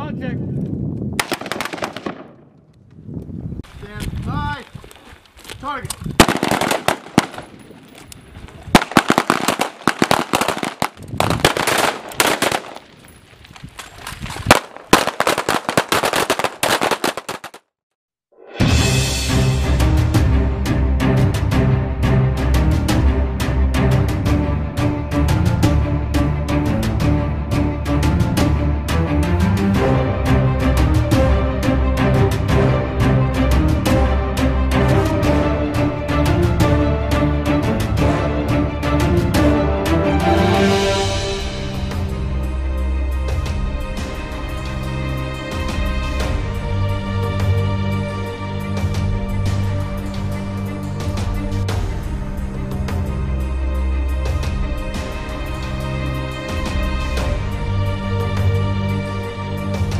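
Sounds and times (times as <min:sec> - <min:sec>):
rapid gunfire: 0:01.2 - 0:02.3, 0:06.2 - 0:07.5, 0:08.8 - 0:12.8
music with held notes: 0:18.6 - 0:59.9.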